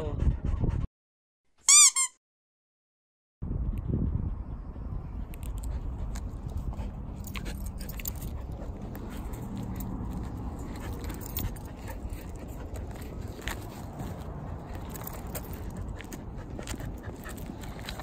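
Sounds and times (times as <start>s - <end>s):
low rumble: 3.4s - 18.0s
light clicks and jingles: 5.4s - 18.0s.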